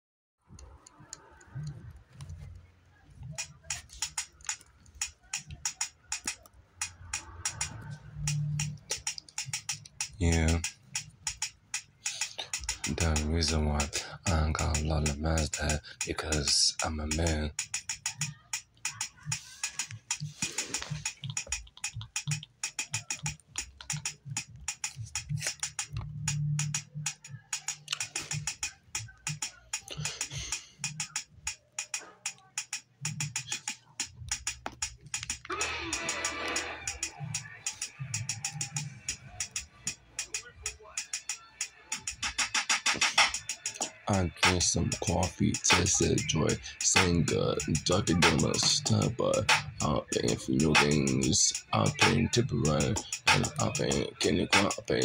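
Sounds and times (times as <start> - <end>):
sharp taps: 3.2 - 35.5
rapid sharp clicks: 3.2 - 55.0.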